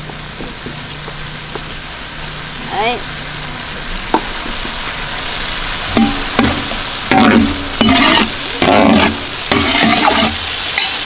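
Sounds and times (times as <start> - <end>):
sauce sizzling in oil: 0.0 - 11.0
metal spoon scraping a wok: 6.0 - 11.0
spoon clinking on pan: 10.8 - 11.0.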